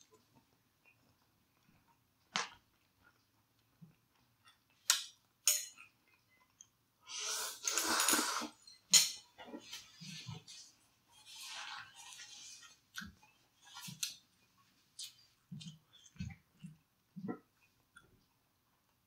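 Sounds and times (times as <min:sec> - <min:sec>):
soft chewing: 0:00.0 - 0:07.0, 0:09.3 - 0:19.0
chopstick and mouth sounds: 0:15.0 - 0:18.1.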